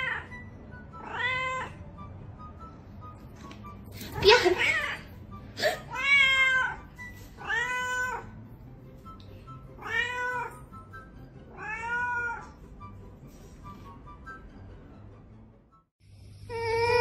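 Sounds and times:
cat meowing: 0.0s - 0.4s, 1.0s - 1.8s, 5.9s - 8.4s, 9.8s - 10.6s, 11.5s - 12.6s.

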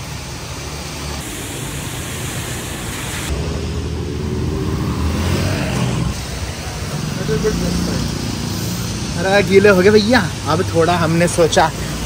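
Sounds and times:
low rumble of road traffic: 0.0s - 12.0s
rain hissing: 0.1s - 12.0s.

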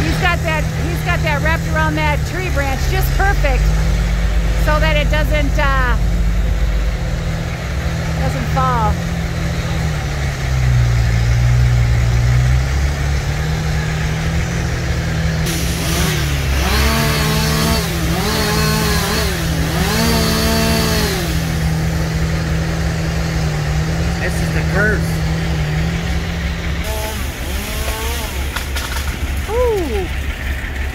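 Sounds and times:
truck engine running: 0.0s - 30.9s
chainsaw revving: 7.2s - 30.2s.

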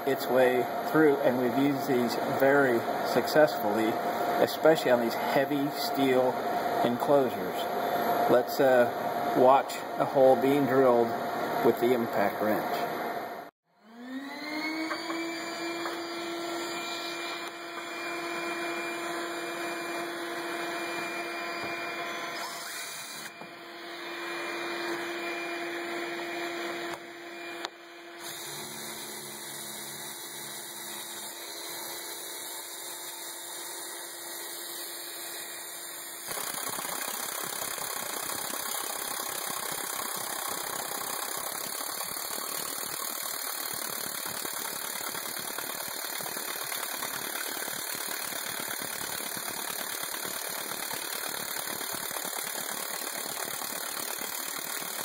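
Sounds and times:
impact wrench hole saw cutting steel: 14.9s - 55.0s.

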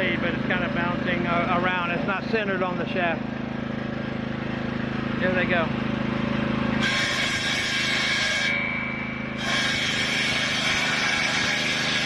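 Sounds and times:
engine running: 0.0s - 12.0s
saw blade cutting wood: 6.8s - 12.0s.

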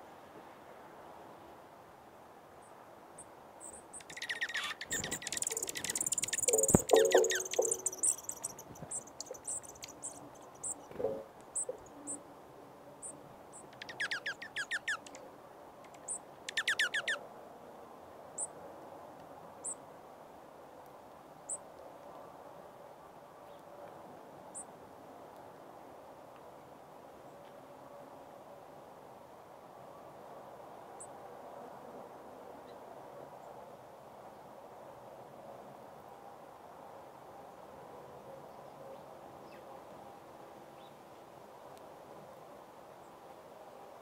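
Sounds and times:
songbirds chipping: 3.2s - 12.2s
bird twittering and trills: 3.6s - 12.2s, 13.5s - 15.2s, 15.8s - 17.2s.

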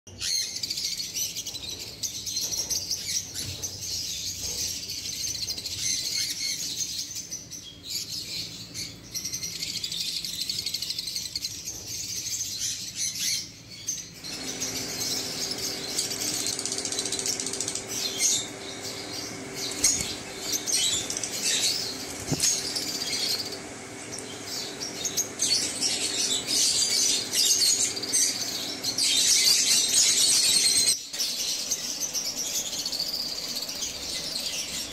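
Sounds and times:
lovebirds chirping and squeaking: 0.1s - 34.9s
low steady hum: 14.2s - 30.8s.

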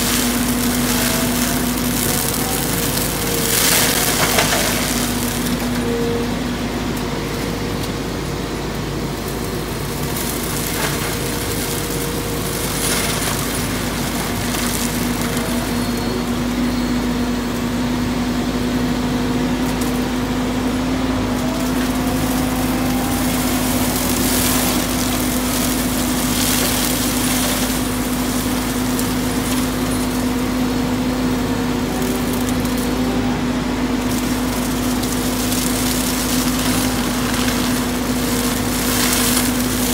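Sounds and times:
wood splintering cracks: 0.0s - 5.8s, 9.2s - 16.4s, 21.2s - 31.0s, 33.9s - 39.9s
brush mulcher humming: 0.0s - 39.9s.

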